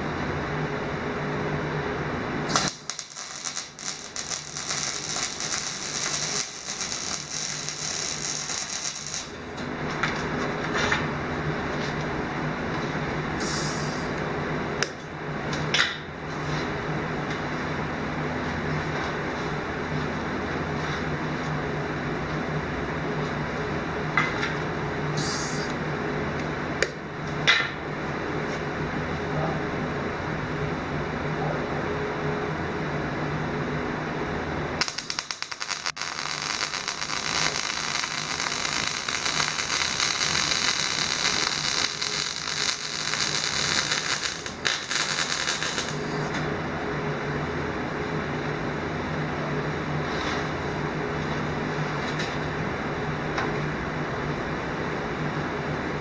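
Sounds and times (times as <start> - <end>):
steady hum: 0.0 - 56.0
welding arc crackling: 2.5 - 9.6, 34.8 - 46.4.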